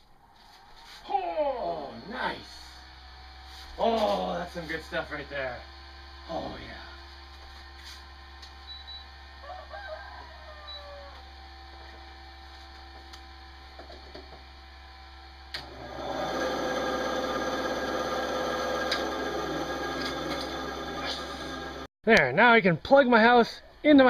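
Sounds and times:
steady hum and hiss: 0.7s - 8.6s
rooster crowing: 9.4s - 11.4s.

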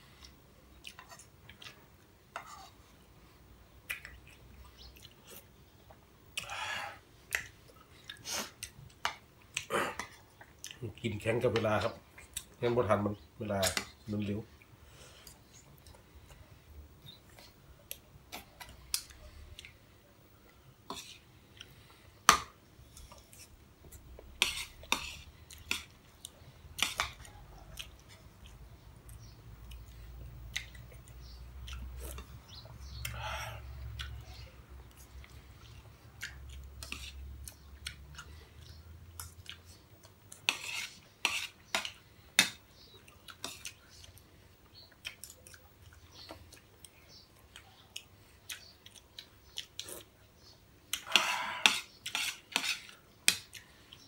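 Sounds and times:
chewing: 0.2s - 2.9s, 3.9s - 6.6s, 7.3s - 11.0s, 17.1s - 19.8s, 22.9s - 42.0s, 42.8s - 50.2s.

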